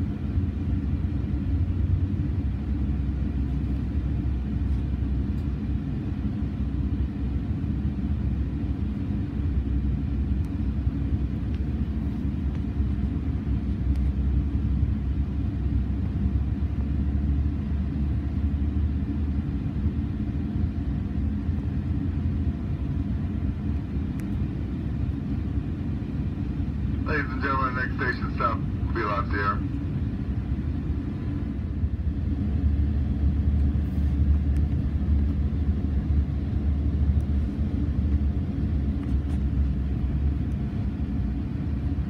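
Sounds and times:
train rumbling on track: 0:00.0 - 0:42.0.

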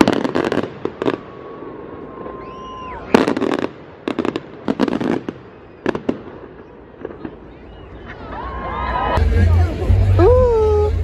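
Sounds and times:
fireworks cracking and crackling: 0:00.0 - 0:08.4.

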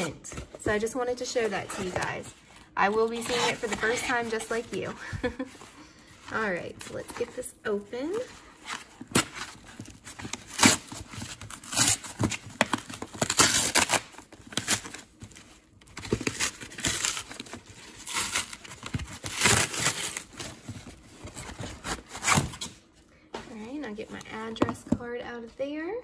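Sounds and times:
cardboard tearing: 0:01.4 - 0:05.7, 0:08.0 - 0:22.8.

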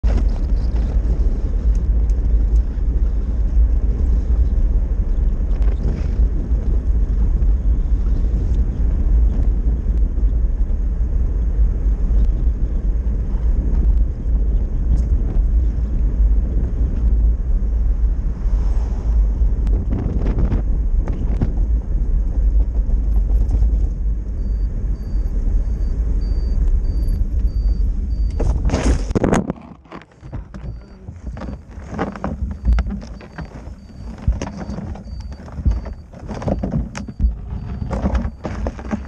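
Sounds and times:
road rumble of rolling vehicle: 0:00.0 - 0:39.0
wind buffeting microphone: 0:00.0 - 0:39.0.

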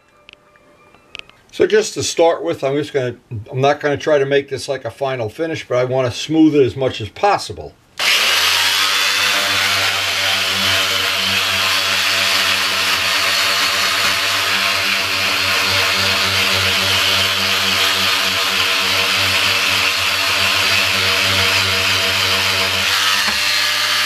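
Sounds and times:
electric sander buzzing: 0:08.0 - 0:24.0.

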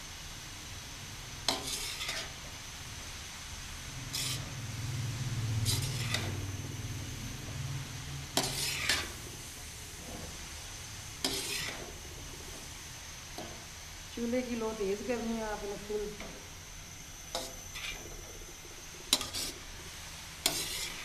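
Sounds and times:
low steady hum: 0:00.0 - 0:21.0
metal spoon scraping metal pan: 0:01.5 - 0:02.4, 0:04.1 - 0:04.6, 0:05.6 - 0:06.4, 0:08.3 - 0:09.2, 0:11.2 - 0:12.0, 0:17.3 - 0:18.4, 0:19.0 - 0:19.8, 0:20.4 - 0:21.0.

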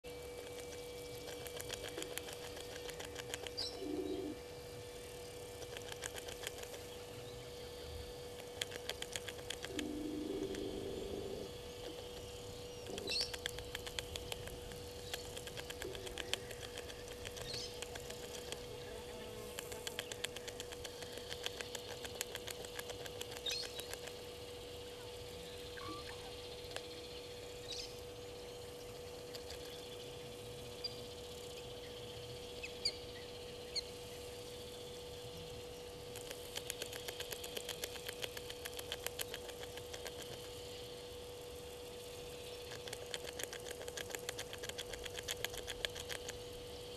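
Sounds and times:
steady hum: 0:00.0 - 0:46.9
rapid fine ticking: 0:00.3 - 0:03.6, 0:05.5 - 0:06.9, 0:08.2 - 0:18.7, 0:19.4 - 0:24.2, 0:36.1 - 0:40.6, 0:42.6 - 0:46.4
high bird chirps: 0:25.7 - 0:26.8.

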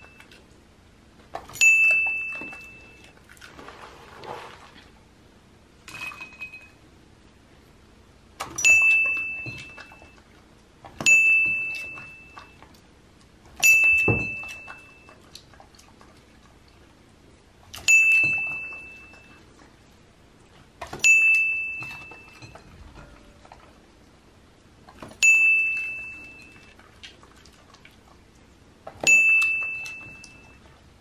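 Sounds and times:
bright bell-like ding: 0:29.1 - 0:30.5.

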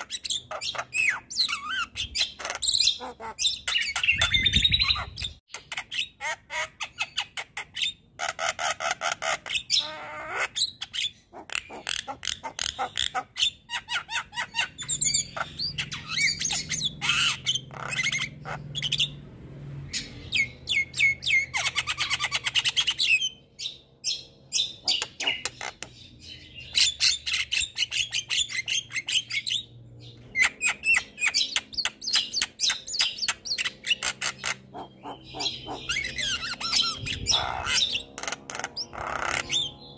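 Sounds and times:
bird squawking and whistling: 0:00.0 - 0:19.2, 0:19.9 - 0:39.9.

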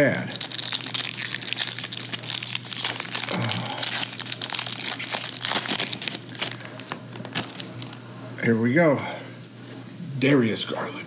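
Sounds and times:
foil wrapper crinkling and tearing: 0:00.0 - 0:08.0.

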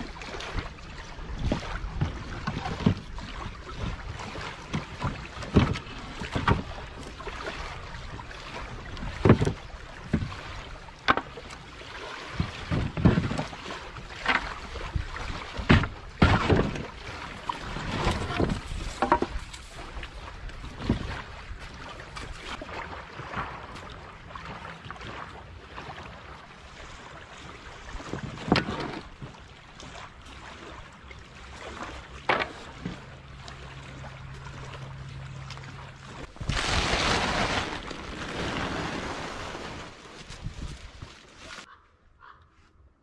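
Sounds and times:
water lapping at shore: 0:00.0 - 0:42.5
wind: 0:00.0 - 0:43.0
wooden boards knocking: 0:18.3 - 0:19.4.

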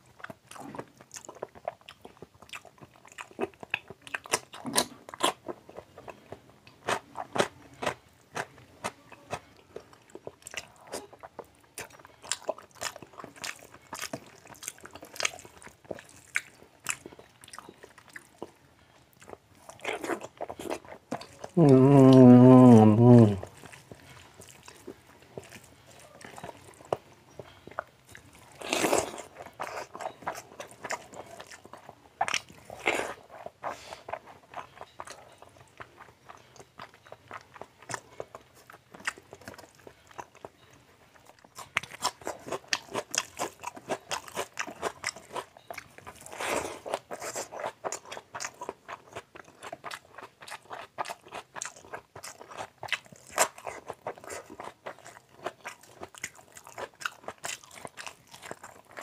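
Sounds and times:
wet chewing and mouth smacking: 0:00.0 - 0:59.0.

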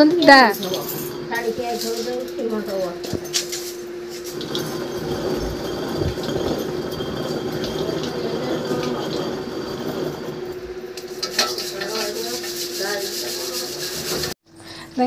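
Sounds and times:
stone quern grinding: 0:04.2 - 0:14.4.

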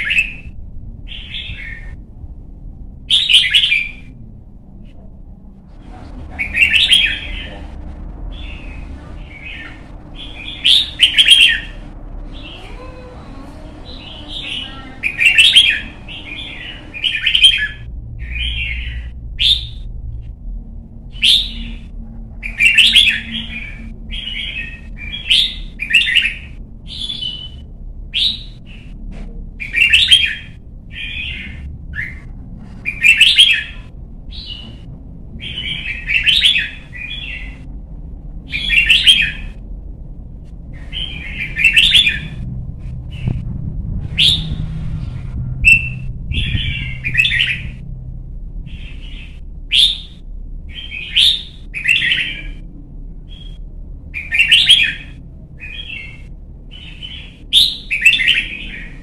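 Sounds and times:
faint low rumble: 0:00.0 - 0:59.0
bird song phrases: 0:06.4 - 0:07.7, 0:08.3 - 0:19.9.

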